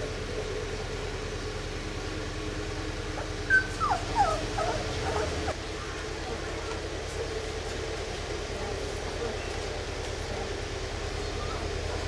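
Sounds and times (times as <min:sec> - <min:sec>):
puppies whimpering: 0:03.2 - 0:05.6.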